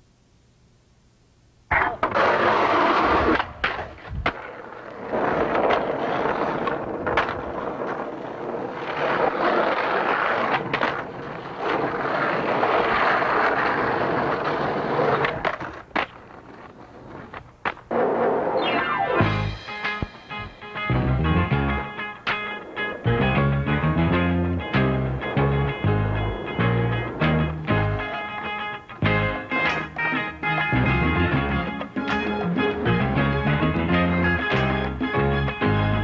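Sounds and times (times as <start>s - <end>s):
skateboard clacking on landing: 1.7s - 18.4s, 24.7s - 30.6s, 31.4s - 36.0s
skateboard wheels rolling on concrete: 1.7s - 36.0s.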